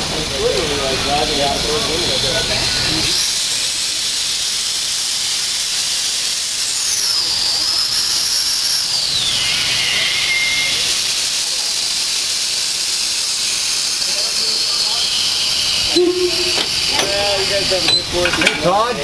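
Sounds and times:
steam hissing: 0.0 - 19.0
thin whistling tone: 6.5 - 11.9, 13.5 - 18.2.

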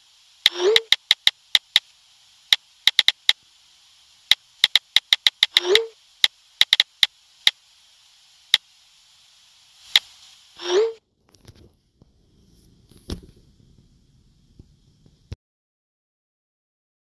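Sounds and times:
sharp electrical clicks: 0.0 - 1.9, 2.5 - 3.4, 4.2 - 7.6, 8.5 - 8.7, 9.8 - 10.3.

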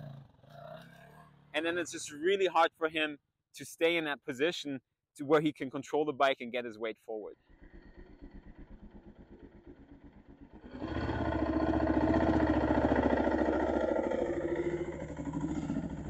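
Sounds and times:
dirt bike engine revving: 10.3 - 16.0.

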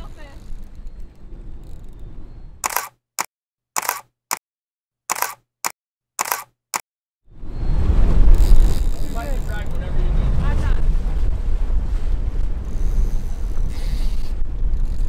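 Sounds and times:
wind: 0.0 - 4.4, 5.1 - 5.4, 6.2 - 15.0
camera shutter clicks: 2.6 - 2.9, 3.8 - 4.1, 5.1 - 5.4, 6.2 - 6.5
boat noise: 7.4 - 15.0.

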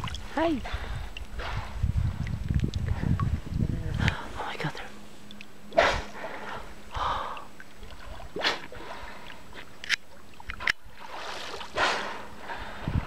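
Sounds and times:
water splashing whooshes: 10.8 - 12.3.

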